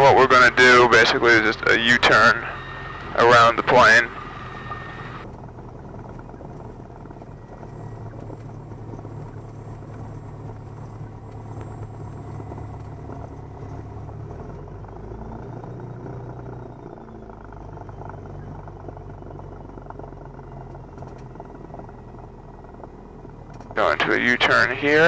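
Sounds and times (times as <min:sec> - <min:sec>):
propeller plane engine droning: 0:00.0 - 0:25.0.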